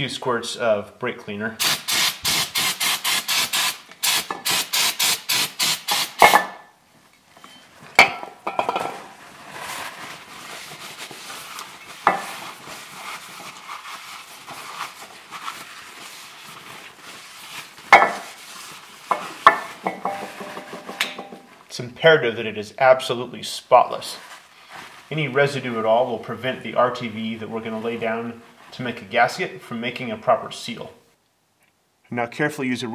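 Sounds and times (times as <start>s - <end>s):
spray can squirts: 1.6s - 6.5s
paper towel rubbing metal: 9.2s - 20.7s
metal cover knocking on surface: 19.5s - 21.5s.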